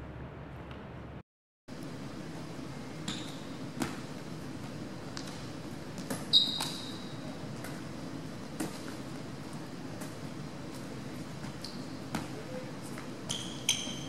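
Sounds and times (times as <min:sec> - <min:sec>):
low hum of hall: 0:00.0 - 0:14.0
sneaker squeak: 0:03.0 - 0:04.0, 0:06.0 - 0:07.8, 0:11.4 - 0:14.0
volleyball slaps and thuds: 0:05.1 - 0:07.0.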